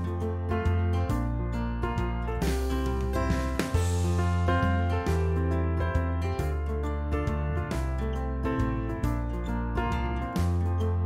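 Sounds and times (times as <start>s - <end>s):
melody over held bass notes: 0.0s - 11.0s.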